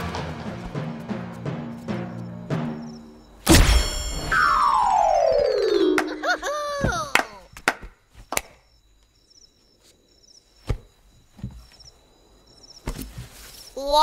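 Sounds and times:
short warbling tones: 3.8s - 6.4s.

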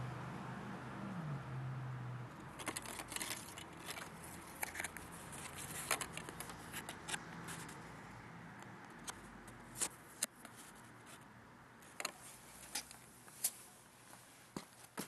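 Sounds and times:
paper tags crackling and rustling: 2.5s - 7.8s.

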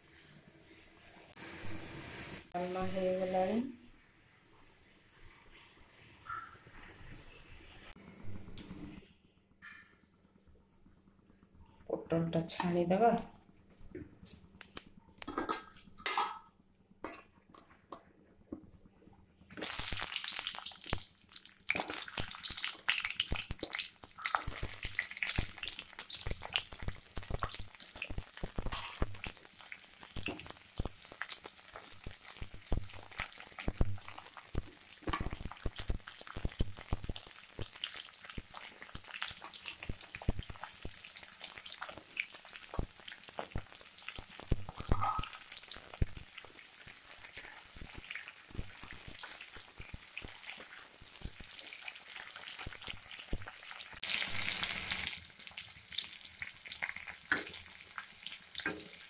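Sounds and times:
vegetables sizzling in hot oil: 1.0s - 3.7s, 19.5s - 59.0s.

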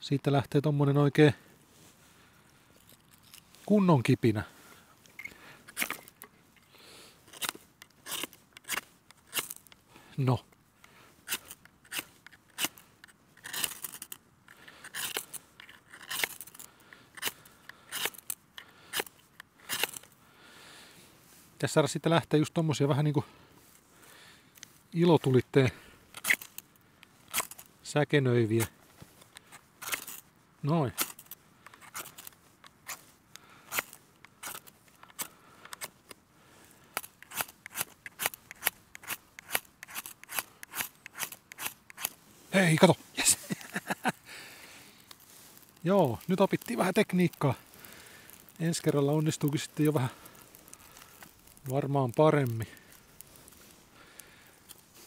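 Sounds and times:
flint and steel striking: 5.0s - 6.4s, 7.3s - 9.8s, 10.8s - 20.2s, 26.1s - 26.7s, 27.3s - 27.7s, 29.3s - 30.3s, 30.9s - 36.2s, 36.8s - 42.2s, 49.7s - 51.7s.

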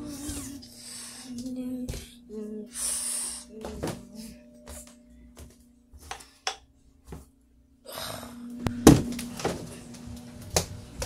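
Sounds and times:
steady low hum: 0.0s - 11.0s
loud bump: 8.7s - 9.6s.

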